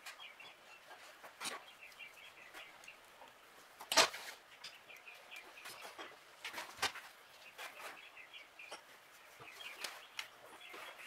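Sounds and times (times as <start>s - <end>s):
faint bird chirping: 0.0s - 11.0s.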